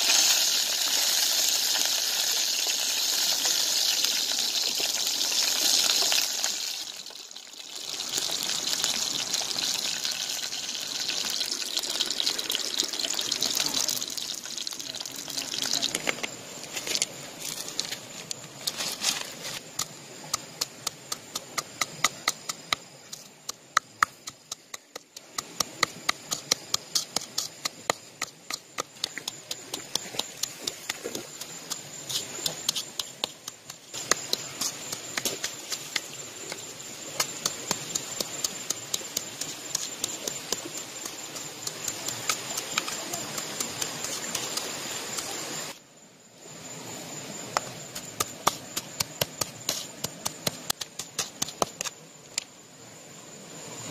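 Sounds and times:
stone pounding in bowl: 0:19.8 - 0:45.2, 0:47.9 - 0:52.0.

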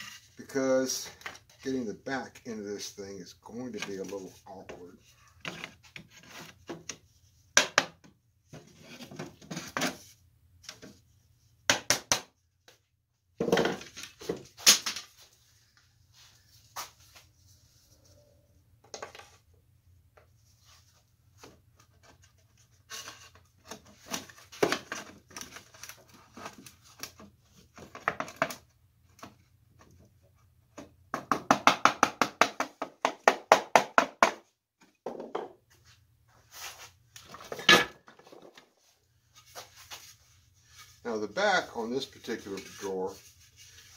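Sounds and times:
wooden drawer parts clattering: 0:37.3 - 0:38.7.

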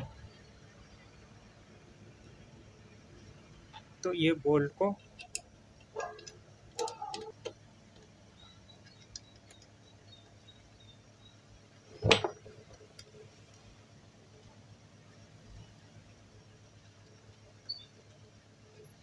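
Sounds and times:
metallic clicks and taps: 0:05.0 - 0:08.1.

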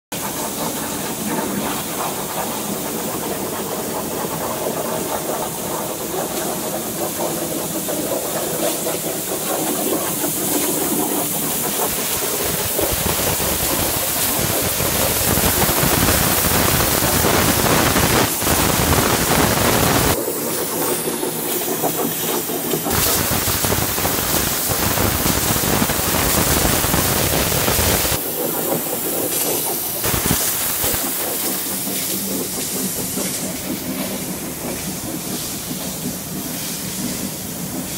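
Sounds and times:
plasma torch cutting steel: 0:09.4 - 0:32.2.

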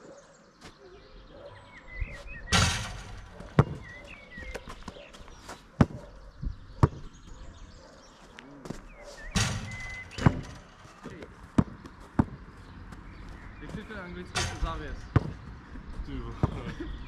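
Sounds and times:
birds chirping: 0:00.0 - 0:17.0
basketball hitting backboard and hoop: 0:02.5 - 0:04.2, 0:09.4 - 0:11.0, 0:14.3 - 0:15.5
basketball bouncing on court: 0:02.5 - 0:04.7, 0:06.8 - 0:07.2, 0:09.4 - 0:12.5, 0:14.4 - 0:15.5.

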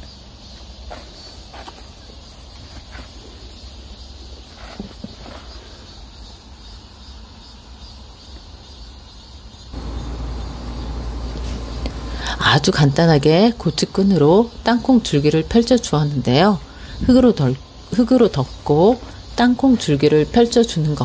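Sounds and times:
faint rustles of plants: 0:00.0 - 0:06.4, 0:09.8 - 0:13.9, 0:15.9 - 0:21.0
high insect chirring: 0:05.9 - 0:21.0
low background rumble: 0:09.8 - 0:13.4.

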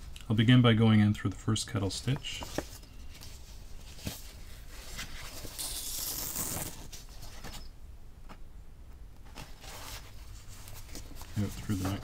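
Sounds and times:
paper rustling: 0:02.0 - 0:07.7, 0:09.2 - 0:12.0.

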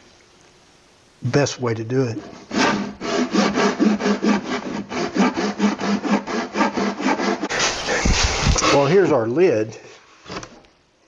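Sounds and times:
handsaw cutting plywood: 0:02.2 - 0:09.0.

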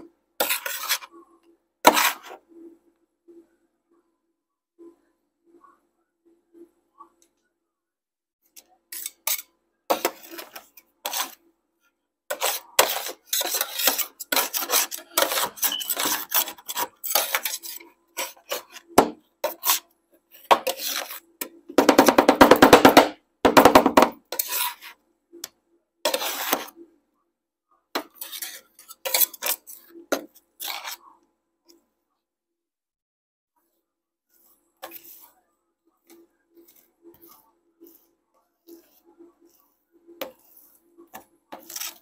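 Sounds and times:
metal spatulas chopping and scraping: 0:00.4 - 0:01.1, 0:01.9 - 0:02.4, 0:08.6 - 0:11.4, 0:12.3 - 0:25.0, 0:26.1 - 0:26.8, 0:28.0 - 0:31.2, 0:34.8 - 0:35.4, 0:36.0 - 0:42.0.

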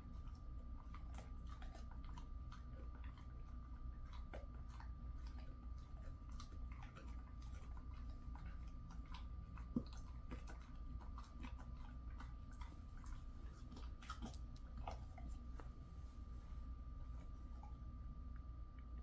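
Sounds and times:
dog chewing a treat: 0:00.0 - 0:19.0
low hum: 0:00.0 - 0:19.0
faint high whine: 0:14.6 - 0:19.0.

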